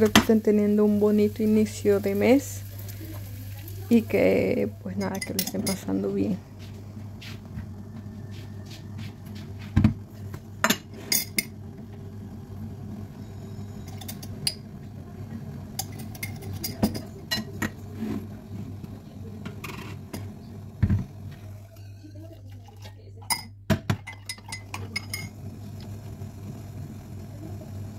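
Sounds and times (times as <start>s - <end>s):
steady low hum: 0.0s - 22.1s
metal jug knocking on countertop: 9.7s - 10.0s, 23.7s - 24.1s.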